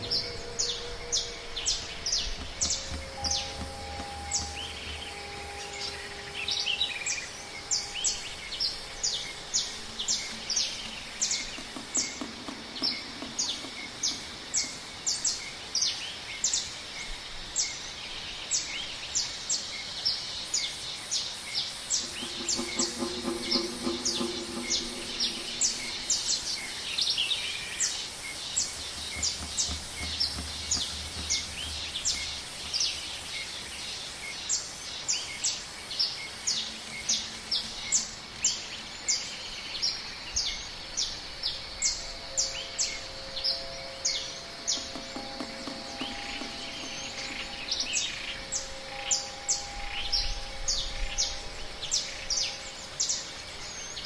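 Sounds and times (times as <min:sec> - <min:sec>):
low pulsed call: 0:00.0 - 0:11.6, 0:21.9 - 0:34.0, 0:41.8 - 0:54.0
background hiss: 0:00.0 - 0:54.0.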